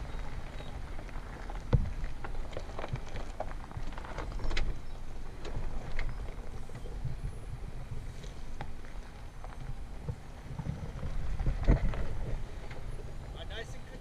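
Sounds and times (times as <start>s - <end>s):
tyres crunching gravel: 0.0s - 14.0s
wind on microphone: 3.8s - 8.8s, 9.6s - 14.0s.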